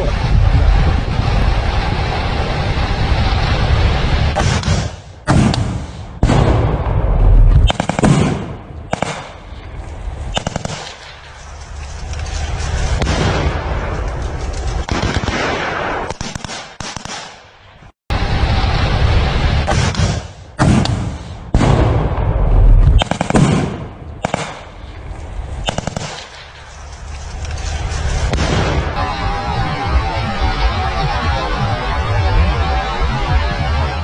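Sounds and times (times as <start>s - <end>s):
steady rush of noise: 0.0s - 15.1s, 17.7s - 34.0s
scattered gunshots: 4.3s - 6.9s, 7.6s - 9.5s, 10.3s - 11.3s, 12.6s - 17.5s, 19.6s - 22.3s, 23.0s - 25.0s, 25.6s - 26.6s, 27.9s - 29.3s
automatic gunfire: 7.6s - 9.4s, 10.4s - 11.1s, 14.8s - 17.4s, 23.0s - 24.7s, 25.6s - 26.5s.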